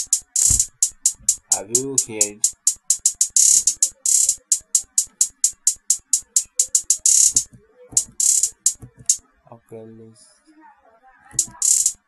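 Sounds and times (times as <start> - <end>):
crisp hi-hat hits: 0.0 - 9.2, 11.4 - 12.0
rapid hi-hat rolls: 0.0 - 9.2, 11.4 - 12.0
low thumps: 0.3 - 1.6.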